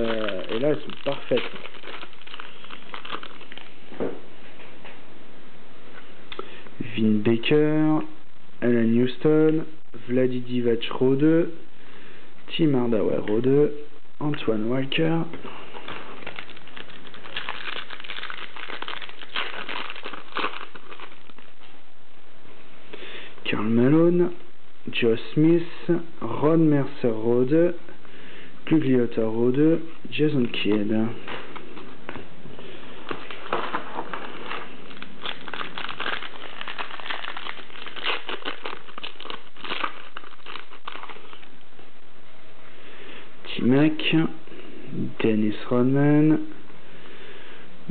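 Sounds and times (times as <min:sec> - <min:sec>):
foil wrapper crinkling: 0:00.0 - 0:03.8, 0:15.5 - 0:21.8, 0:32.8 - 0:41.6
wrapper being torn open: 0:00.0 - 0:03.8, 0:15.8 - 0:21.7, 0:33.1 - 0:41.6.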